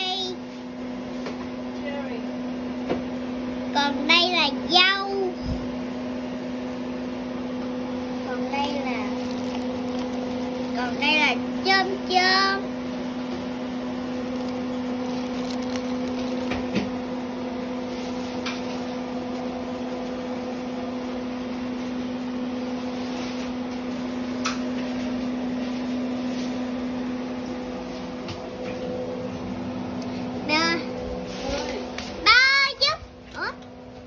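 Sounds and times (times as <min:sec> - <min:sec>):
microwave oven hum: 0:00.0 - 0:34.0.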